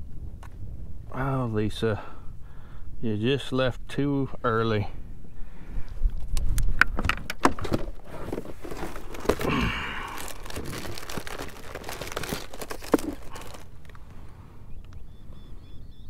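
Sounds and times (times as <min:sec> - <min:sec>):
crinkling rustle: 0:07.1 - 0:14.4.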